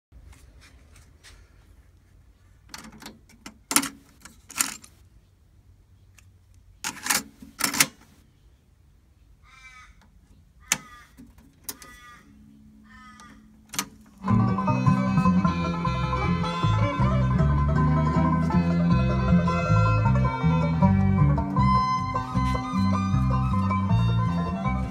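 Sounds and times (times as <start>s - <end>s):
bird cawing: 9.4s - 13.6s
cassette deck buttons clicking: 10.7s - 12.0s
music playing from tape: 14.2s - 24.9s.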